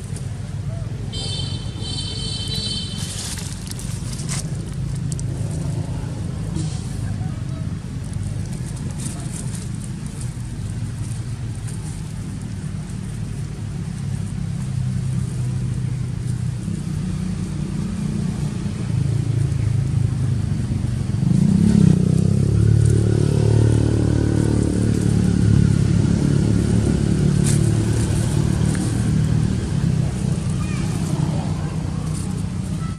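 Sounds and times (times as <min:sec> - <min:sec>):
vehicle engine humming: 0:00.0 - 0:32.9.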